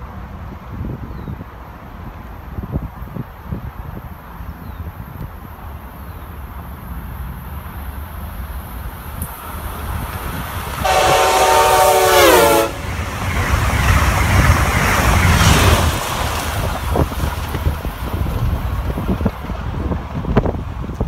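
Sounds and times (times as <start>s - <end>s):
train wheels rushing on rails: 0.0s - 21.0s
train horn: 10.8s - 13.0s.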